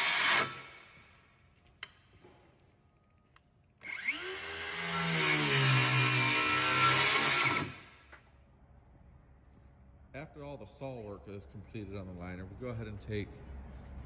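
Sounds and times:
circular saw cutting plastic: 0.0s - 0.7s, 3.8s - 8.0s.

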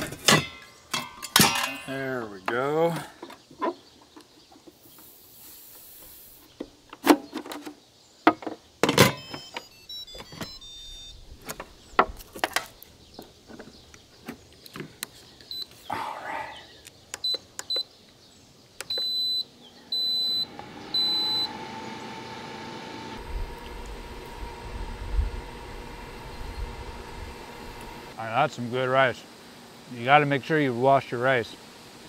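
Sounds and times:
falling series of chimes: 9.2s - 11.1s
control panel beeps: 9.2s - 11.2s, 17.2s - 17.9s, 18.9s - 21.5s.

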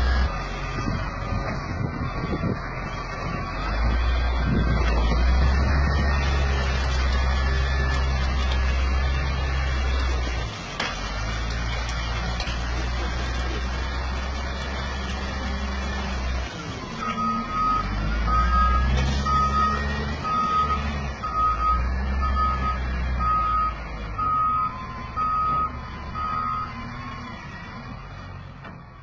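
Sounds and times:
diesel engine rumbling: 0.0s - 29.0s
reversing alarm beeps: 17.0s - 26.8s.

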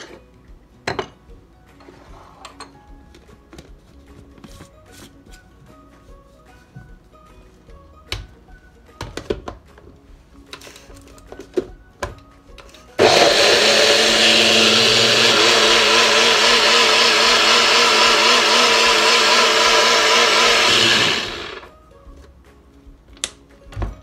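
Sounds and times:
blender running: 13.0s - 21.7s.

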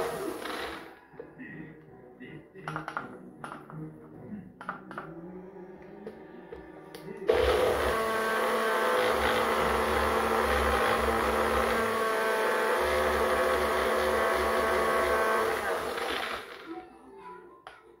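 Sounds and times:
blender motor whine: 0.0s - 0.9s, 7.3s - 16.7s.

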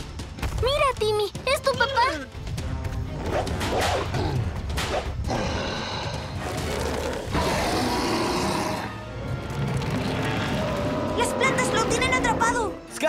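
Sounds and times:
dinosaur roaring: 5.3s - 12.4s.

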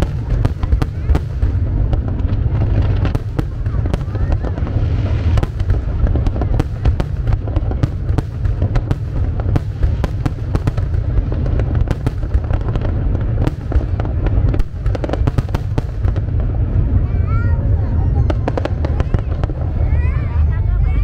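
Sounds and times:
fireworks cracking and banging: 0.0s - 21.0s
low rumble: 0.0s - 21.0s.

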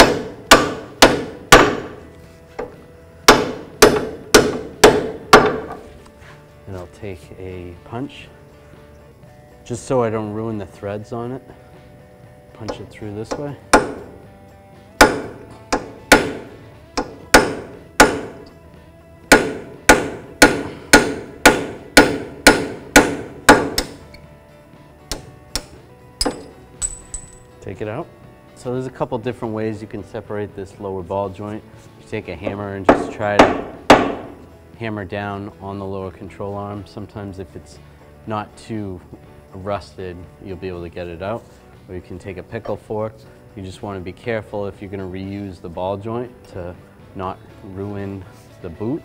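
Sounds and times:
hammer striking metal: 0.0s - 2.0s, 3.3s - 5.8s, 12.7s - 14.2s, 15.0s - 18.5s, 19.3s - 24.0s, 25.1s - 27.5s, 32.5s - 34.4s.

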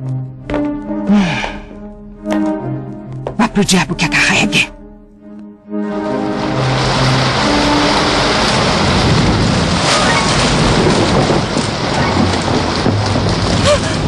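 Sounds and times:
thunder rumbling: 5.8s - 14.0s
heavy rain downpour: 5.9s - 14.0s.

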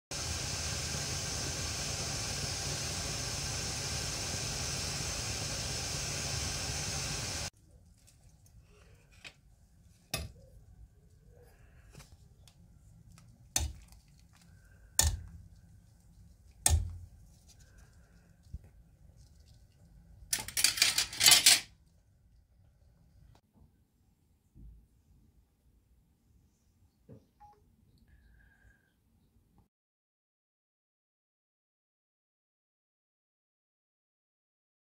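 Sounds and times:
water boiling in a pot: 0.1s - 8.6s, 13.0s - 20.4s.

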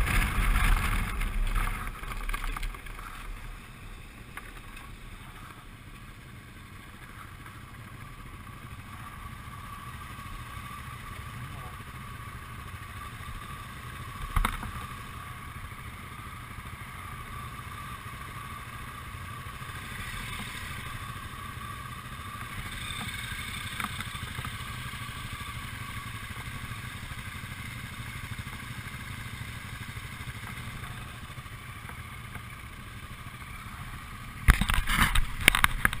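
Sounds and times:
rush of noise: 0.0s - 5.8s
motorcycle engines idling: 0.0s - 36.0s.

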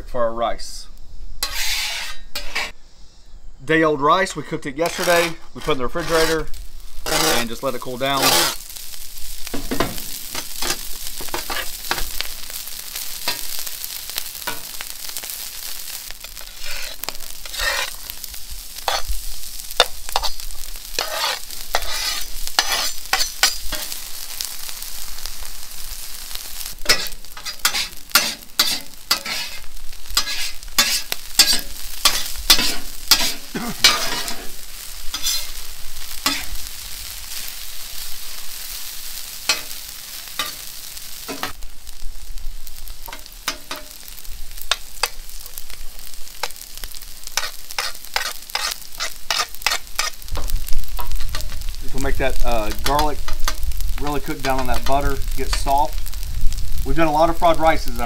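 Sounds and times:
rice sizzling on griddle: 0.0s - 3.4s, 4.2s - 58.0s
metal spatula scraping and tapping: 1.4s - 2.7s, 7.0s - 7.5s, 16.2s - 18.0s, 19.8s - 20.4s, 21.0s - 23.9s, 26.8s - 34.5s, 35.1s - 35.5s, 43.1s - 43.9s, 47.4s - 51.6s.

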